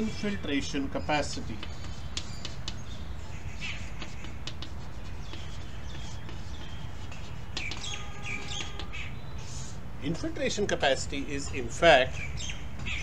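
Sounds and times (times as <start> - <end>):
small birds chirping: 0.0 - 9.8, 11.5 - 13.0
chalk writing on chalkboard: 1.2 - 9.8.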